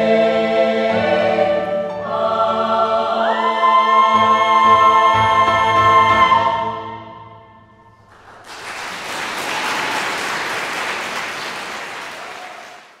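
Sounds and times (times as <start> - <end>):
choir final chord: 0.0 - 6.7
audience applause: 8.0 - 13.0.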